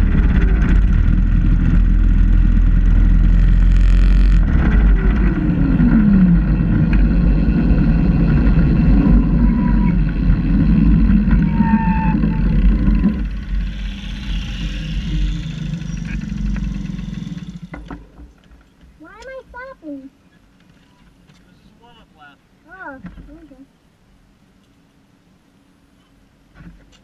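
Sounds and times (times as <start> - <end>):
small car driving rumble: 0.0 - 19.7.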